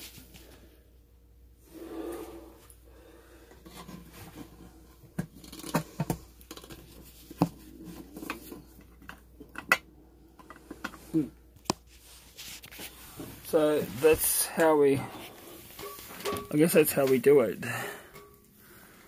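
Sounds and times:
metal pots rubbing and scraping: 11.9s - 17.3s.

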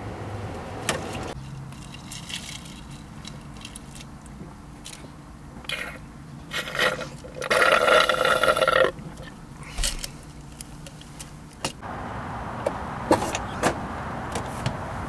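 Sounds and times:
person slurping from a cup: 5.7s - 9.3s.

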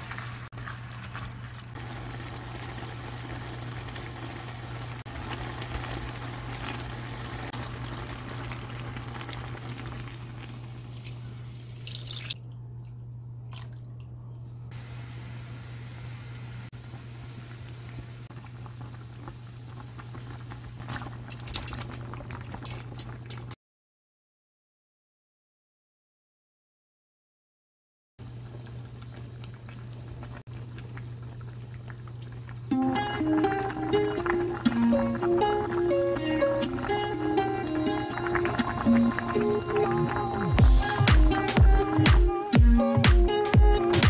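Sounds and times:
broth being poured: 0.0s - 14.5s
stew bubbling: 0.0s - 14.5s, 16.8s - 23.5s, 28.2s - 42.2s.

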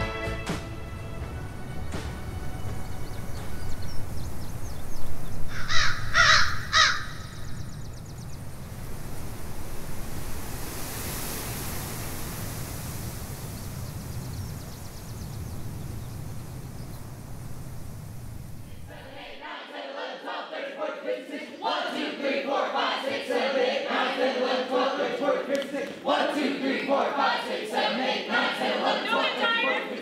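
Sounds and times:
low stormy rumble: 1.0s - 19.4s
crow cawing: 5.5s - 7.6s.

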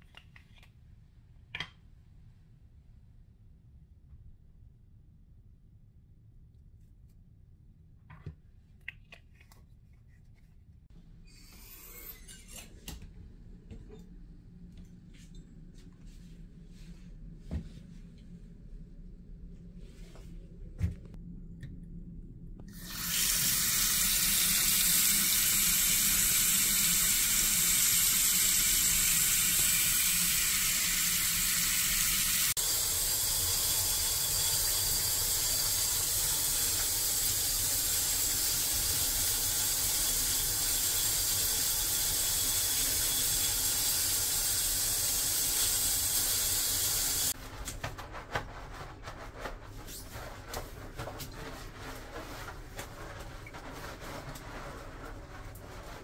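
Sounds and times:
tap water running into basin: 22.7s - 47.4s.

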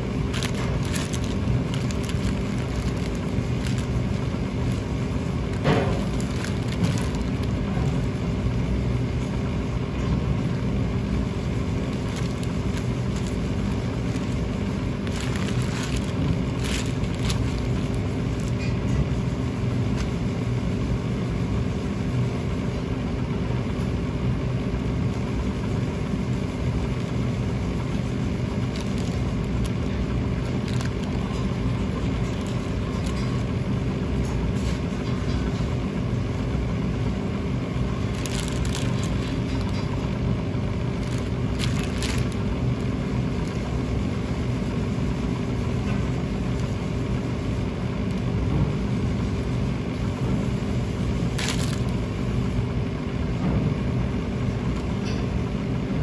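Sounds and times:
plastic wrap rustling: 0.0s - 9.0s, 11.2s - 19.1s, 26.6s - 35.3s, 37.5s - 48.4s, 51.0s - 52.3s
kitchen machinery humming: 0.0s - 56.0s.

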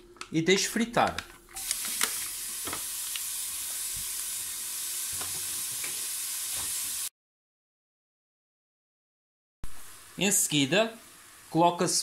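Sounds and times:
bacon sizzling in a pot: 1.5s - 7.1s, 9.7s - 12.0s.

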